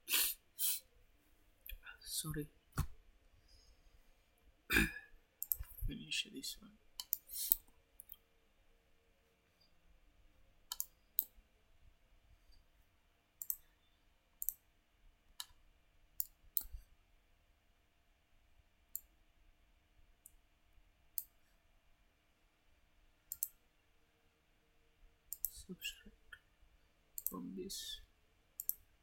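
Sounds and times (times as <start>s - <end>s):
faint steady hum: 0.0s - 29.0s
mouse and keyboard clicks: 5.4s - 5.8s, 7.0s - 8.2s, 10.7s - 11.3s, 13.4s - 13.6s, 14.4s - 14.6s, 23.3s - 23.6s, 27.2s - 27.4s, 28.6s - 28.8s.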